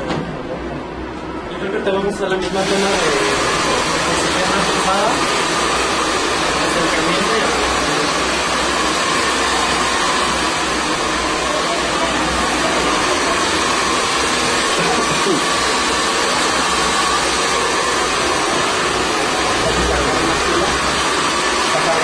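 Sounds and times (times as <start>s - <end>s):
hair dryer blowing: 2.4s - 22.0s.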